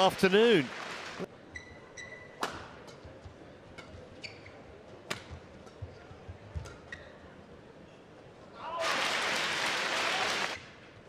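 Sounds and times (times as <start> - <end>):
high shoe squeaks on court: 4.2 - 4.6.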